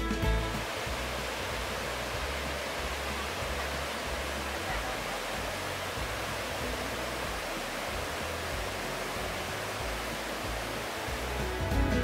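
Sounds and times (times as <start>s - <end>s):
waterfall rushing: 0.0s - 12.0s.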